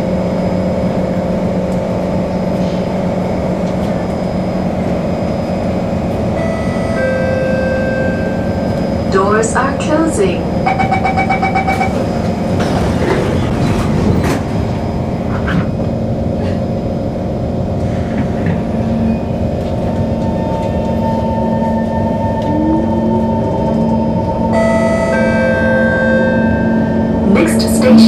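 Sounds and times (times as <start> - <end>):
steady rumble: 0.0 - 28.0
train motors whining: 0.0 - 28.0
door-closing beeps: 10.7 - 12.1.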